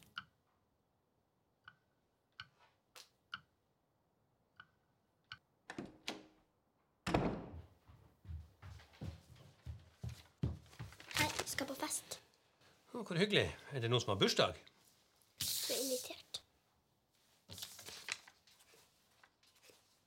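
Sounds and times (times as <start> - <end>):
loud thud: 7.1 - 7.7.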